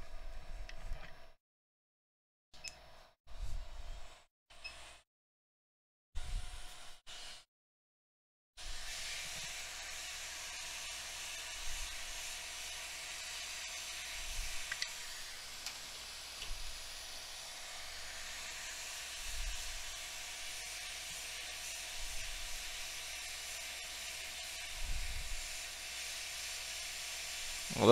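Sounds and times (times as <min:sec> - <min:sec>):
hot air blower hissing: 0:08.6 - 0:27.9.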